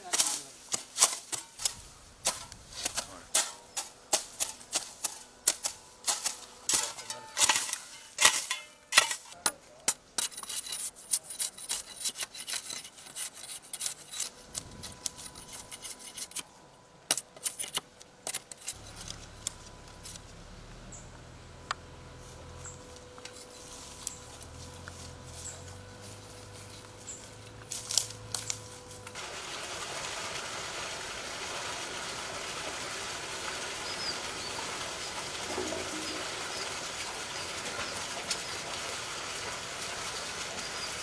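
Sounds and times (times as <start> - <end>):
hand tools hacking at ground: 0.0 - 14.3
low steady hum: 1.1 - 32.4.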